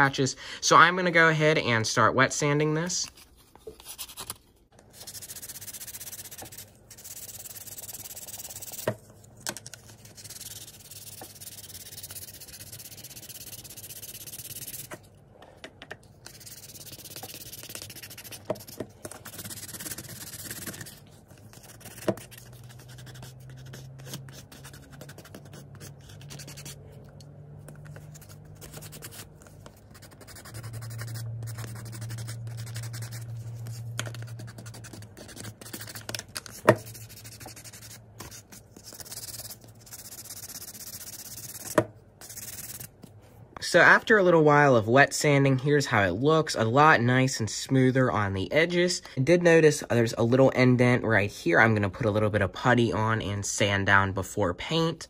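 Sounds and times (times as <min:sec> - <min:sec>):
sandpaper rubbing on plastic: 0:05.0 - 0:08.9, 0:09.9 - 0:15.0, 0:16.2 - 0:26.8, 0:27.8 - 0:42.9.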